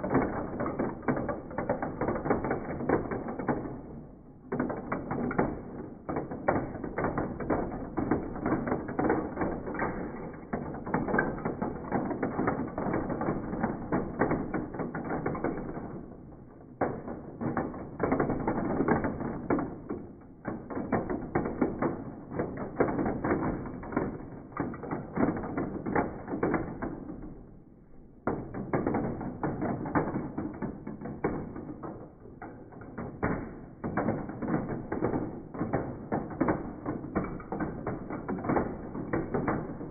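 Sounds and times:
marbles clattering down plastic track: 33.0 - 39.9.

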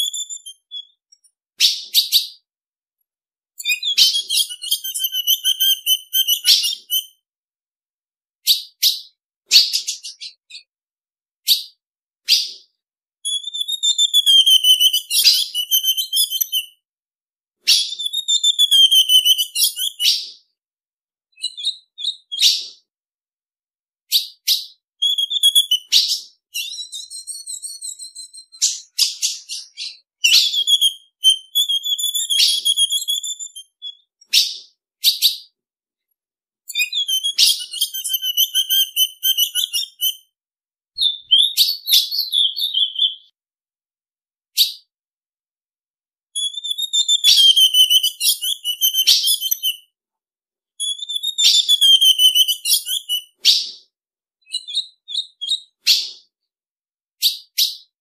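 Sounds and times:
bird chirping and warbling: 0.0 - 2.4, 3.6 - 7.2, 8.4 - 10.7, 11.4 - 16.8, 17.6 - 20.5, 21.3 - 22.9, 24.1 - 35.6, 36.7 - 40.2, 41.0 - 43.4, 46.4 - 49.8, 50.8 - 56.3
sharp bird chip notes: 36.7 - 40.2.

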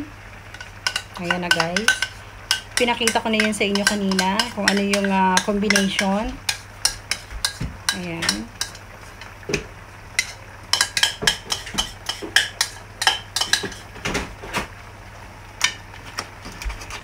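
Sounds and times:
faint steady hum: 0.0 - 17.0
kitchenware clinking: 0.6 - 8.8, 10.2 - 14.3.

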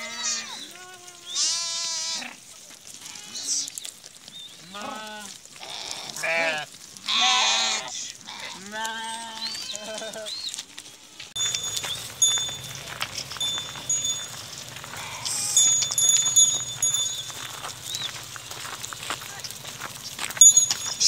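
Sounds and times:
sheep and goats bleating: 0.0 - 3.9, 4.5 - 21.0
thin bell-like ringing: 11.4 - 18.8, 20.3 - 21.0.

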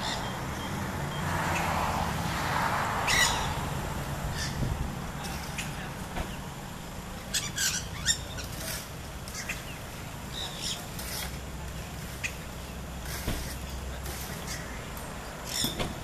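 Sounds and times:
parakeet harsh chattering: 7.3 - 8.5.

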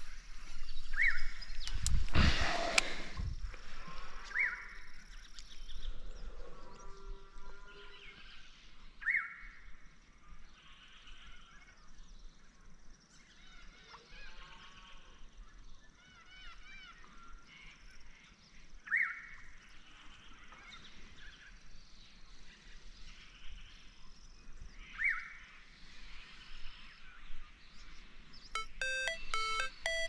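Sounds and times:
birds and insects chorus: 0.0 - 28.4
music with plucked notes: 28.6 - 30.0.

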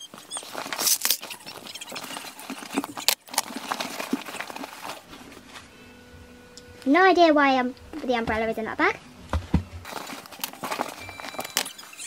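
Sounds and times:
plastic bottles handled in a basket: 0.0 - 5.6, 9.8 - 12.0.

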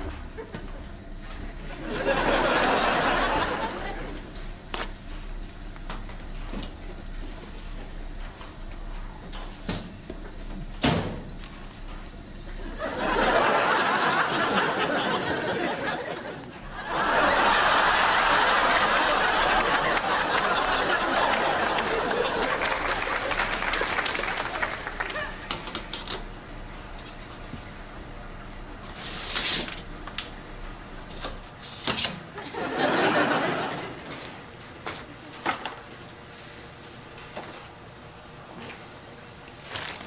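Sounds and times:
audience laughing: 1.6 - 4.4, 12.5 - 25.6, 32.3 - 34.4.

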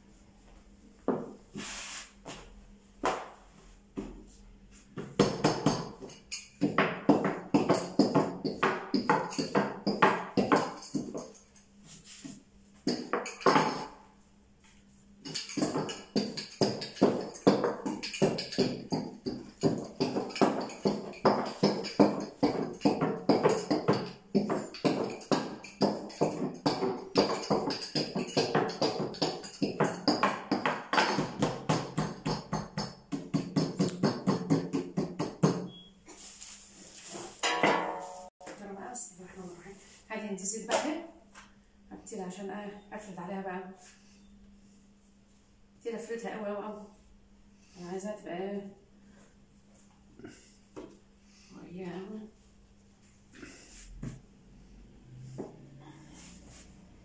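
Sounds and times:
music with tambourine percussion: 5.1 - 14.0, 15.2 - 35.9.

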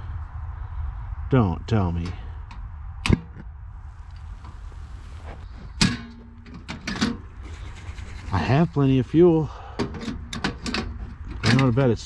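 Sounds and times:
low wind rumble: 0.0 - 12.0
camp stove clicks: 9.8 - 11.7.

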